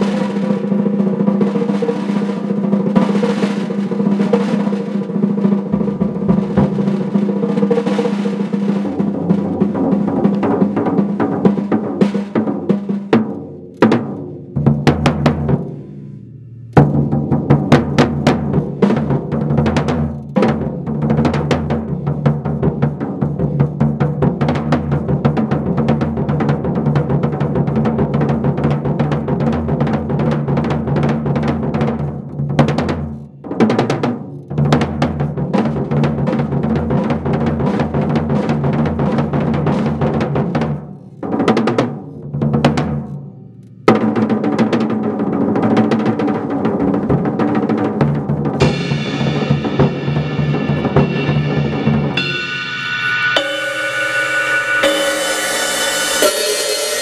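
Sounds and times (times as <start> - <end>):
drum kit rolls and strokes: 0.0 - 57.0
bass drum: 2.6 - 44.8, 45.6 - 57.0
cymbal ringing: 48.6 - 57.0.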